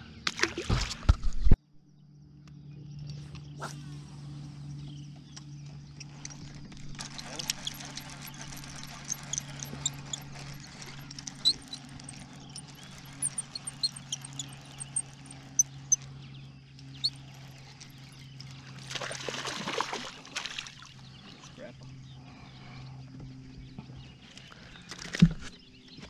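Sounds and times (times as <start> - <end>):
steady low hum: 1.2 - 26.0
fish splashing at surface: 18.8 - 20.8.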